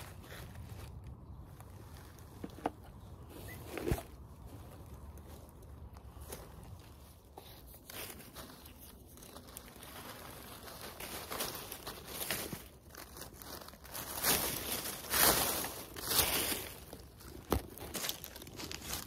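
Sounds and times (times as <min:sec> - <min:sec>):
cat stepping through leaves: 0:00.0 - 0:19.0
dry leaves rustling: 0:00.0 - 0:19.0.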